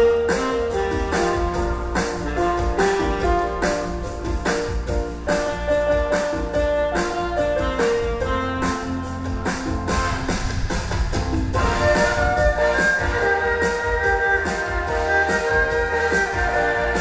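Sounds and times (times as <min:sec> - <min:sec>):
bass and drum beat: 0:00.0 - 0:17.0
keyboard backing: 0:00.0 - 0:17.0
erhu melody: 0:11.6 - 0:17.0.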